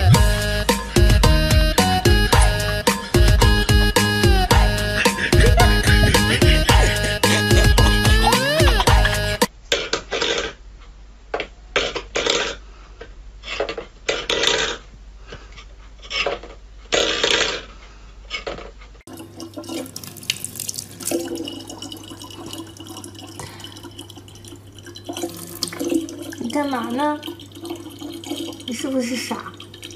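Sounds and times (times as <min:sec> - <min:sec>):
water running: 0:02.0 - 0:09.5, 0:19.1 - 0:29.9
water splashing: 0:19.1 - 0:29.9.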